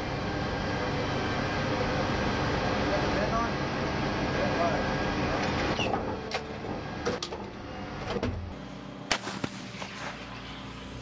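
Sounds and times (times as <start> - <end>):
steady engine hum: 0.0 - 11.0
howitzer firing: 9.1 - 10.2.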